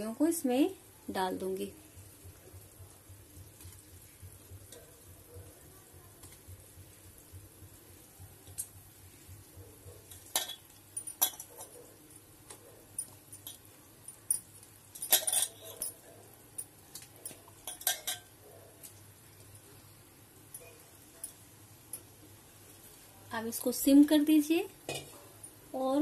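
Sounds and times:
low steady hum: 0:00.0 - 0:26.0
metal bowl and pan clinking: 0:10.1 - 0:11.8, 0:13.0 - 0:13.7, 0:14.3 - 0:16.0, 0:16.6 - 0:18.3.

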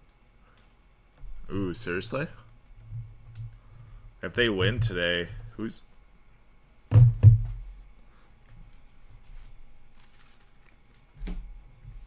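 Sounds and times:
dull thumps: 0:04.4 - 0:05.5, 0:06.9 - 0:07.8.

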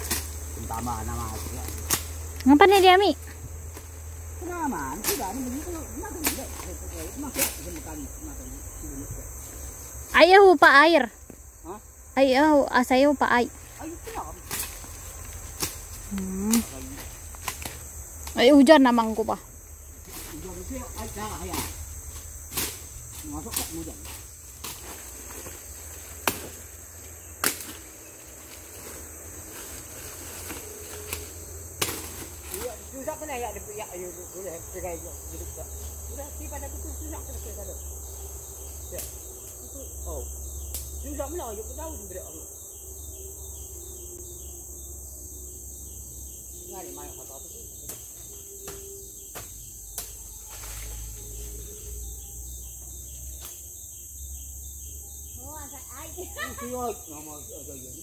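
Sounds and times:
forest insects buzzing: 0:00.0 - 0:58.0
machete chopping wood: 0:26.2 - 0:26.6.

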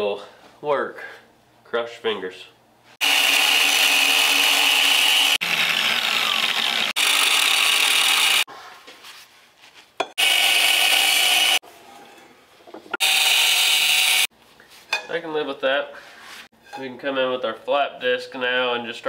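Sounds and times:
angle grinder cutting steel: 0:03.0 - 0:08.5, 0:10.1 - 0:11.6, 0:13.0 - 0:14.3.

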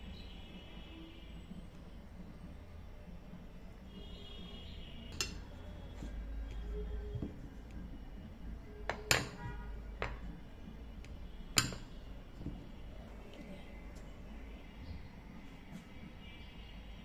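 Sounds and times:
dishes clinking on a plate: 0:05.2 - 0:05.4, 0:08.9 - 0:10.2, 0:11.6 - 0:12.6.

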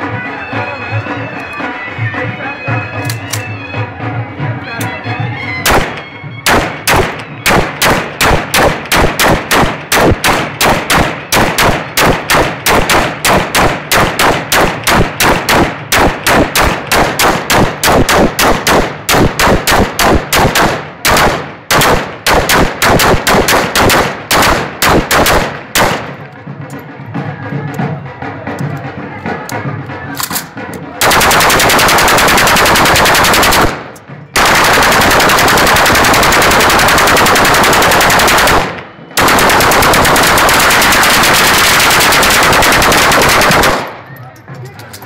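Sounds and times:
rifle firing rapid shots: 0:05.7 - 0:26.2, 0:31.0 - 0:44.0.

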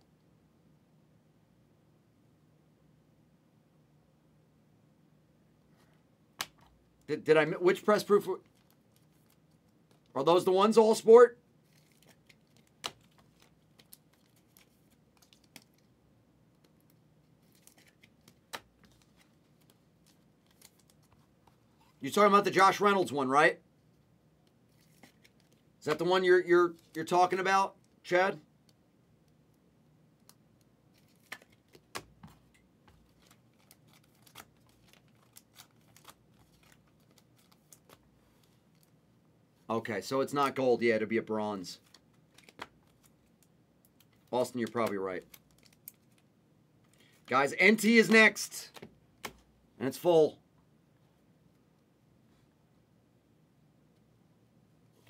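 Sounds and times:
trading cards clicking and rustling: 0:11.7 - 0:15.9, 0:16.6 - 0:22.0, 0:30.3 - 0:38.0, 0:41.8 - 0:43.3, 0:43.9 - 0:46.2.

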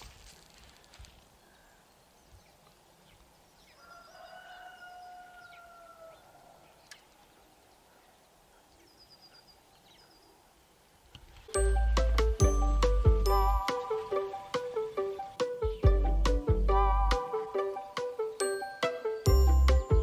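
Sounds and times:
small birds chirping: 0:00.4 - 0:11.4, 0:12.2 - 0:16.6
rooster crowing: 0:03.7 - 0:06.8.

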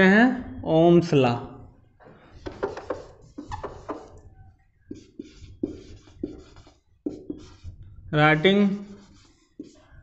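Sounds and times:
marker scratching on whiteboard: 0:02.3 - 0:10.0.

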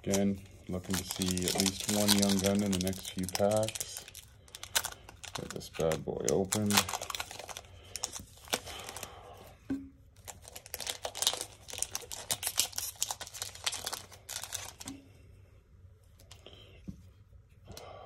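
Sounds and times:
cards rustling: 0:00.0 - 0:09.1, 0:10.2 - 0:15.0
wrapper tearing and crinkling: 0:00.0 - 0:09.1, 0:10.2 - 0:14.8.

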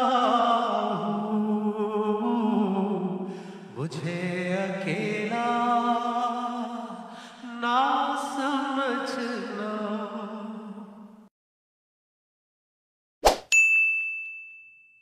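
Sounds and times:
person singing a cappella: 0:00.0 - 0:11.3.

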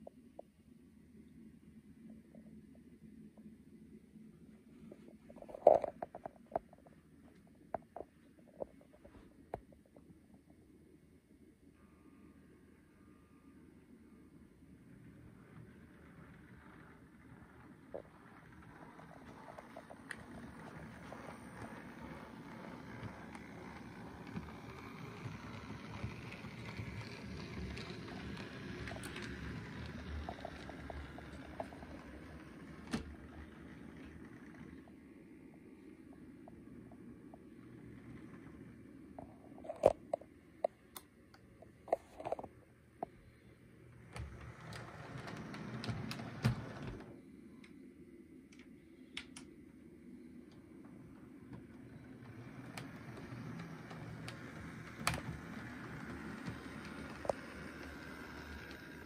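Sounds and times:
model train rolling rumble: 0:15.1 - 0:35.0, 0:51.0 - 0:59.0.

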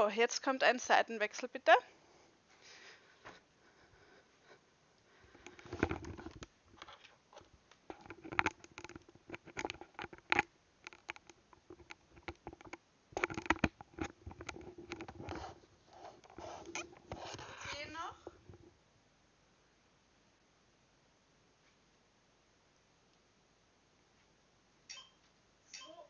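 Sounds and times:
microphone handling noise: 0:05.3 - 0:07.0, 0:16.3 - 0:18.8.

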